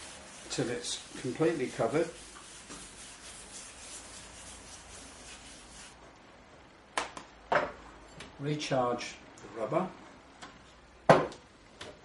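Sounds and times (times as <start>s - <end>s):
pad rubbing on wooden tabletop: 0.0s - 6.0s.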